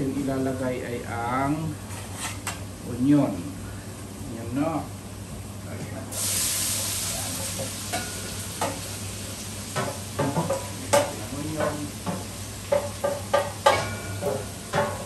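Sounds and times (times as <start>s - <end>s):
onions sizzling: 6.1s - 15.0s.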